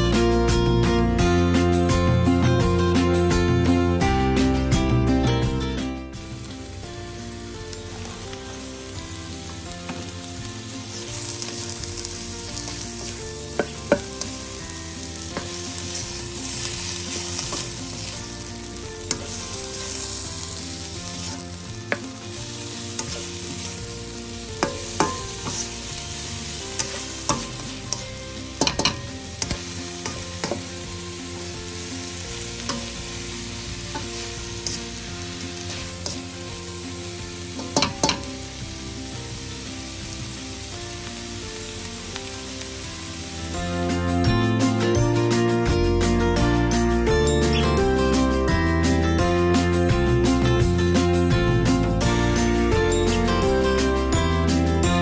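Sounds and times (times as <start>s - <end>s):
food sizzling in a wok: 0.0s - 55.0s
spatula scraping and tapping pan: 12.6s - 14.4s, 15.2s - 18.2s, 19.0s - 20.1s, 21.2s - 22.4s, 23.0s - 23.8s, 24.6s - 25.8s, 26.6s - 30.8s, 33.9s - 35.0s, 37.6s - 38.3s.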